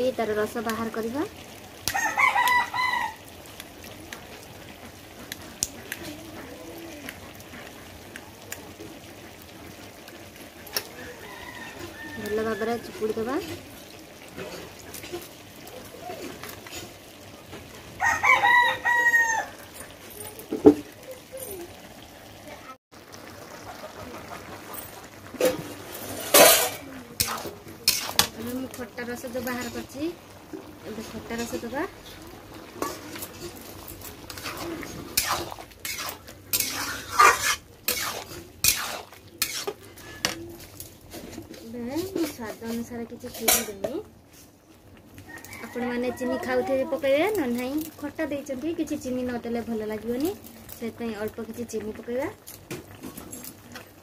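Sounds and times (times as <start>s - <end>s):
rooster crowing: 1.9s - 3.3s, 10.9s - 12.9s, 18.0s - 19.7s, 45.2s - 46.8s
metal spatula scraping metal pan: 25.4s - 30.0s, 32.7s - 40.5s, 41.1s - 43.9s.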